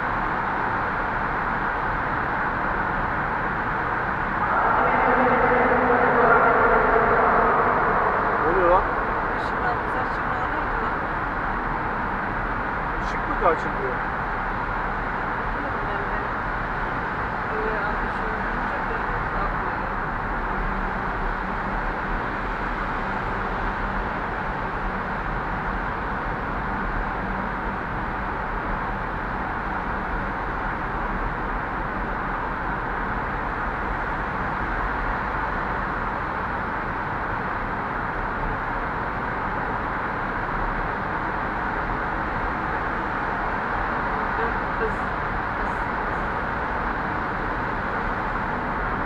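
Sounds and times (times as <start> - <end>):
car road and tyre noise: 0.0 - 49.0
low rumble: 4.1 - 12.0.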